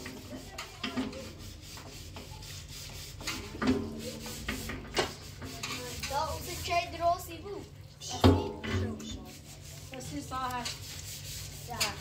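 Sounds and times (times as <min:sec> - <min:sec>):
scrubbing metal pots: 0:00.0 - 0:12.0
metal pots clanking: 0:08.1 - 0:09.2.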